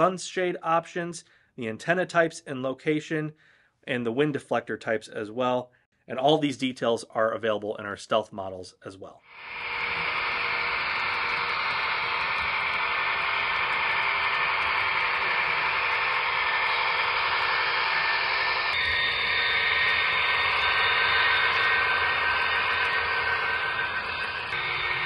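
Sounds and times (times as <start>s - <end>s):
steady whining tones: 9.3s - 25.0s.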